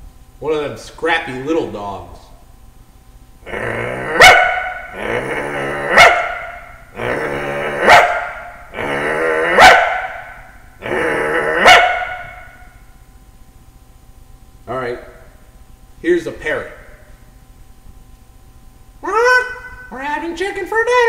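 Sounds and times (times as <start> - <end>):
man imitating dog growling: 3.4 - 10.0, 10.8 - 11.9, 19.0 - 19.8.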